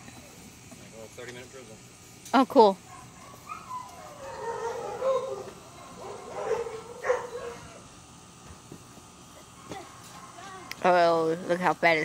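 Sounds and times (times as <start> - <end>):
dog whining: 2.9 - 7.9.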